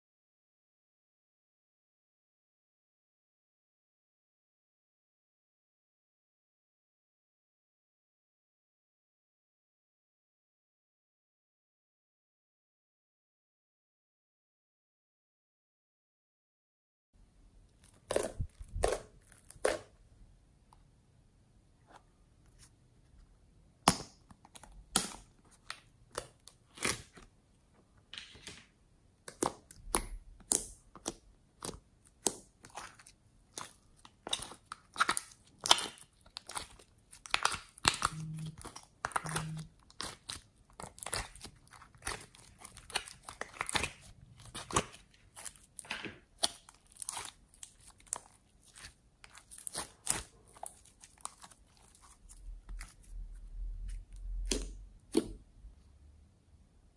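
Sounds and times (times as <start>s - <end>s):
slime squelching and popping: 17.7s - 20.0s, 23.8s - 27.2s, 29.2s - 55.4s.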